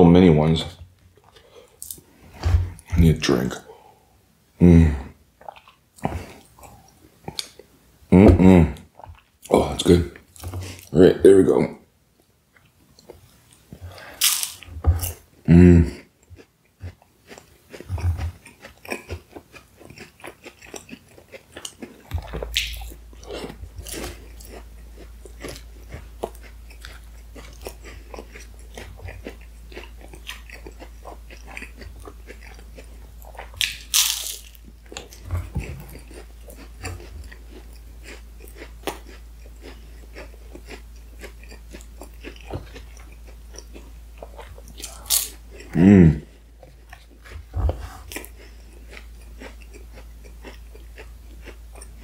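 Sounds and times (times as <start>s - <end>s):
pastry crunching while chewing: 15.8s - 52.0s.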